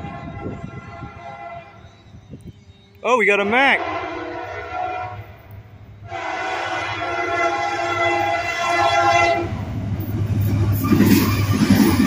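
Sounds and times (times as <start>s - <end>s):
locomotive air horn: 0.0s - 1.9s, 3.3s - 5.4s, 6.0s - 9.6s
freight train rumble: 0.0s - 12.0s.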